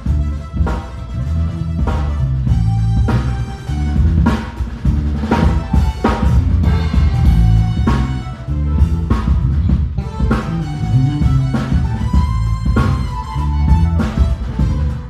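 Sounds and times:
bass drum and snare hits: 0.0 - 15.0
bass line: 0.0 - 15.0
electric guitar: 0.0 - 15.0.

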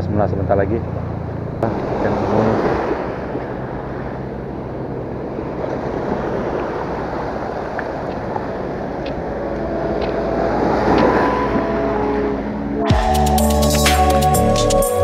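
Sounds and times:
small waves on sandy beach: 1.6 - 12.2
wind on microphone: 1.6 - 12.8.

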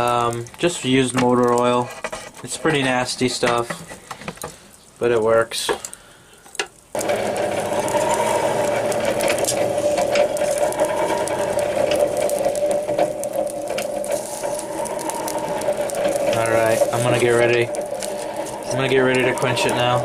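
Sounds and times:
air rushing into fire: 6.9 - 20.0
hand-cranked blower gear whine: 7.0 - 20.0.

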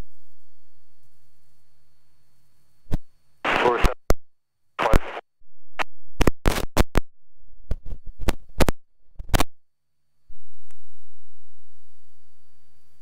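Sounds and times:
sharp radio clicks and crackles: 2.9 - 4.2, 4.8 - 5.2, 5.8 - 7.1, 7.7 - 9.5
radio static burst: 3.4 - 4.0, 4.8 - 5.3, 6.2 - 6.9.

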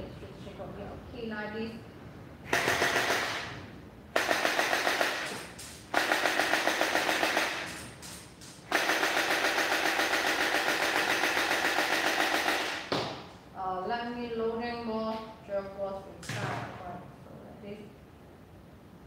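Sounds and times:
gel blaster rapid shots: 2.5 - 3.6, 4.2 - 12.9.

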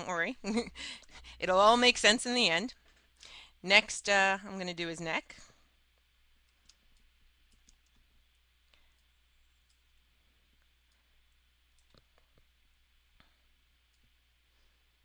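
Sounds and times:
low steady hum: 0.0 - 15.0
computer mouse clicks: 6.5 - 8.1.

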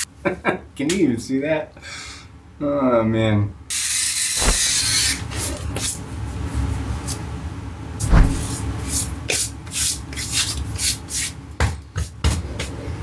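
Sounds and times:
dull thump: 8.0 - 8.5.

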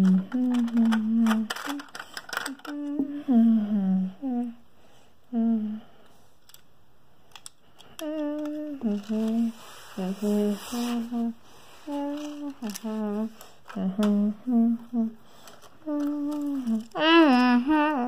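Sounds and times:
child humming: 0.0 - 1.9, 2.5 - 4.6, 5.3 - 5.9, 8.0 - 15.2, 15.8 - 18.0.

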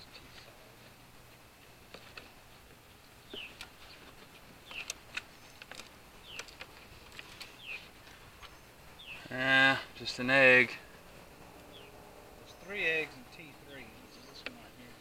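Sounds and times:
bird chirping: 3.2 - 15.0.

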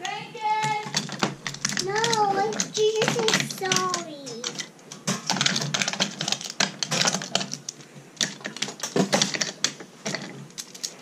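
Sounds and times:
wooden toy train clattering: 0.0 - 11.0.

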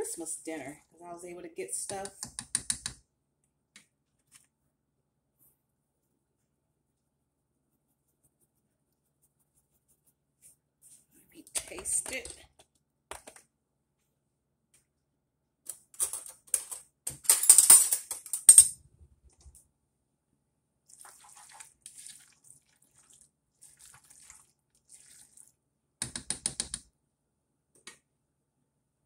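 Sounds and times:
kitchen utensils clattering: 16.0 - 18.8.

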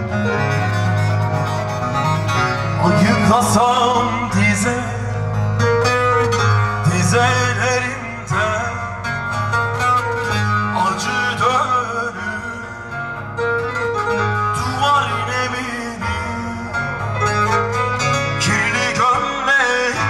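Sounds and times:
steady low bass: 0.0 - 19.4
keyboard playing melody: 0.0 - 20.0
lute melody: 0.0 - 20.0.

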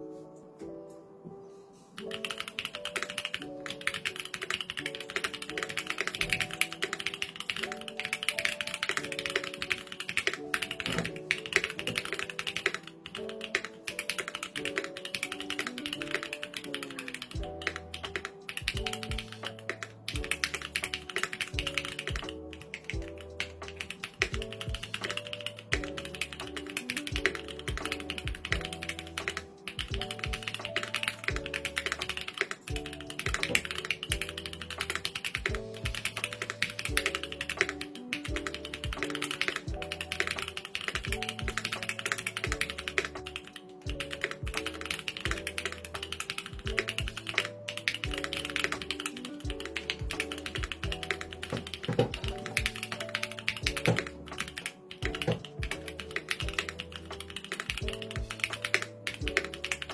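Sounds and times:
mechanical keyboard typing: 2.0 - 59.9.

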